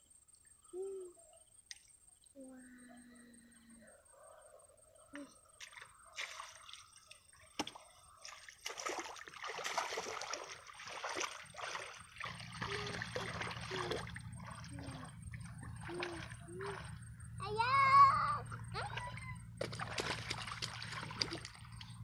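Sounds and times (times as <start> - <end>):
muddy water sloshing: 5.2 - 22.0.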